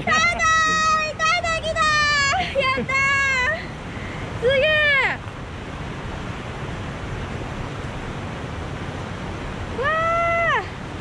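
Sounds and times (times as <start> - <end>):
woman calling out: 0.0 - 3.7, 9.8 - 10.8
river water running over stones: 0.0 - 11.0.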